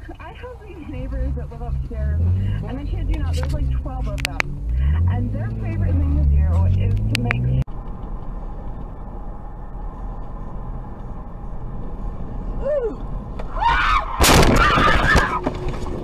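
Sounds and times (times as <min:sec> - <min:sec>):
road and engine noise in car: 0:00.0 - 0:16.0
car crash: 0:13.4 - 0:16.0.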